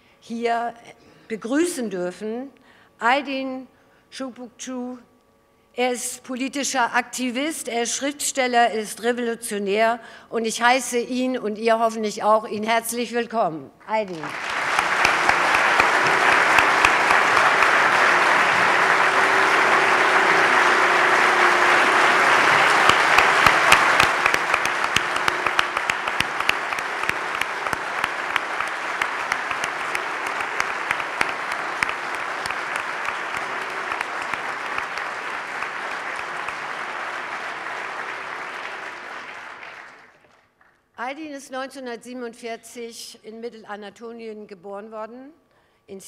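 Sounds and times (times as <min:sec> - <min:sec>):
large audience applauding: 0:14.1 - 0:40.4.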